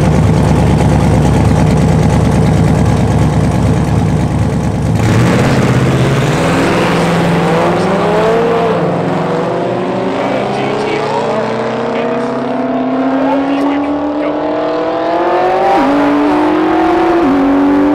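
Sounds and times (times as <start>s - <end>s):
car engine revving loudly: 4.8s - 17.9s.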